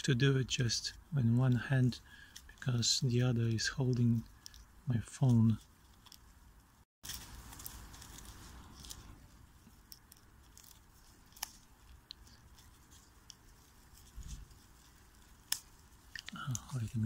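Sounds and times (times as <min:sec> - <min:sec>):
aluminium foil crinkling: 0:05.5 - 0:06.4, 0:07.0 - 0:17.0.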